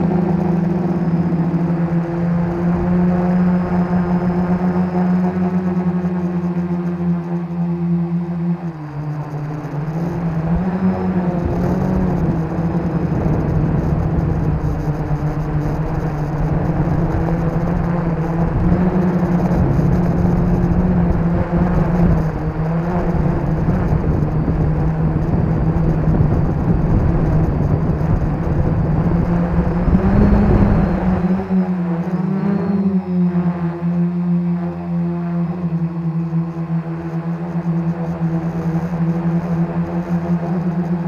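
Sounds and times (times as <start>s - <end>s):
quadcopter motors whirring: 0.0s - 41.0s
wind rush: 10.0s - 31.8s.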